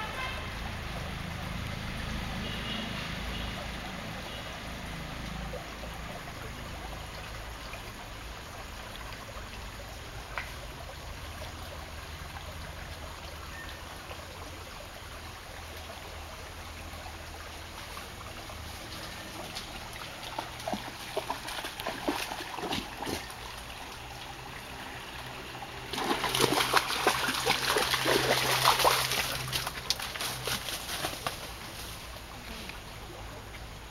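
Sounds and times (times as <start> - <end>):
stream trickling over stones: 0.0 - 33.9
rustles and clicks: 28.6 - 32.7.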